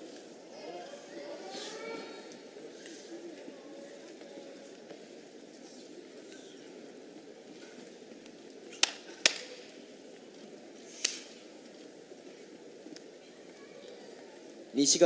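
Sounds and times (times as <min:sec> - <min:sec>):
crowd murmur: 0:00.0 - 0:15.0
sharp hand claps: 0:08.8 - 0:09.6, 0:11.0 - 0:11.3.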